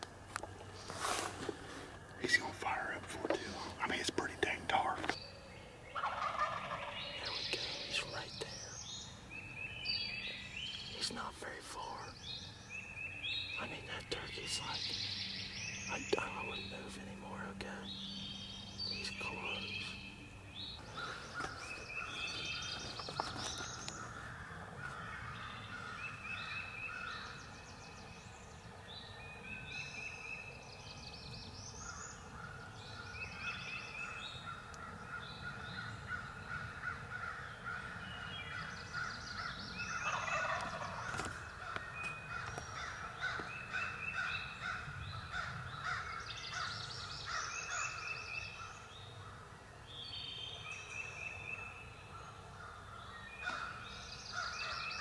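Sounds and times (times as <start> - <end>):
songbirds singing: 0.0 - 55.0
wild turkey gobbling: 5.9 - 7.4, 39.9 - 44.9.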